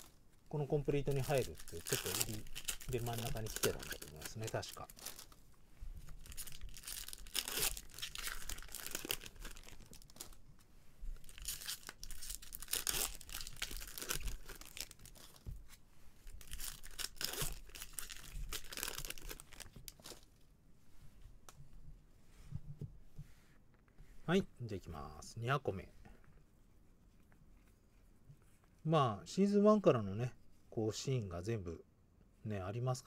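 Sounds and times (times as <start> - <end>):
cards and packaging rustling: 0.0 - 5.4, 6.0 - 10.4, 11.2 - 20.4.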